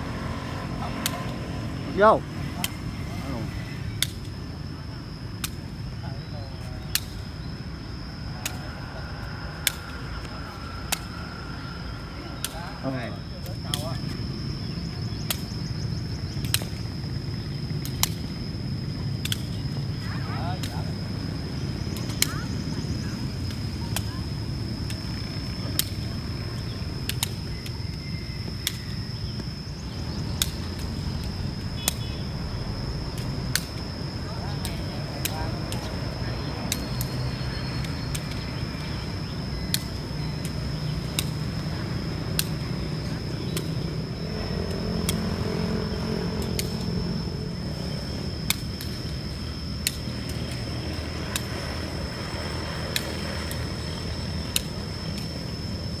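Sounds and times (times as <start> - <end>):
constant low rumble: 0.0 - 56.0
thin high whine: 0.0 - 56.0
steady high-pitched tone: 19.8 - 56.0
low rumble: 29.4 - 36.6.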